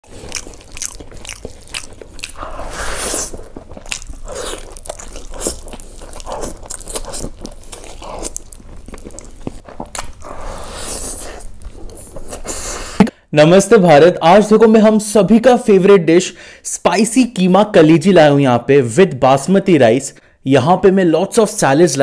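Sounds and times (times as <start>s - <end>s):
person chewing food: 0.0s - 13.1s.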